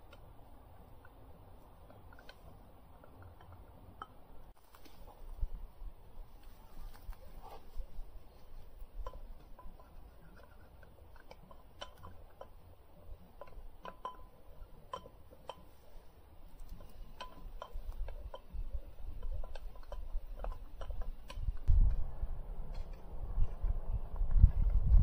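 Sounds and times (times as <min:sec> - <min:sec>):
metal spoon clinking on pot: 0:13.4 - 0:15.7
low rumble: 0:21.5 - 0:25.0.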